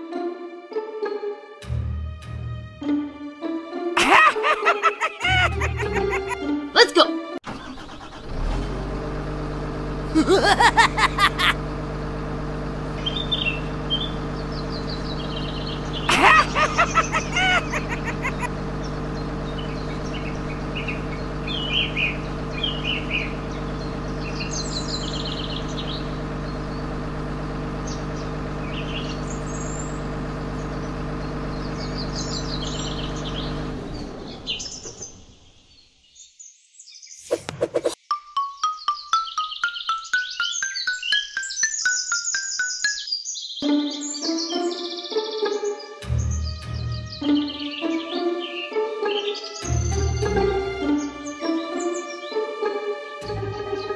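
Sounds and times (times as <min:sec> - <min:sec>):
toy truck engine hum: 0:04.0 - 0:06.4, 0:07.5 - 0:35.5
birds chirping: 0:04.0 - 0:06.9, 0:10.2 - 0:11.6, 0:12.2 - 0:53.9.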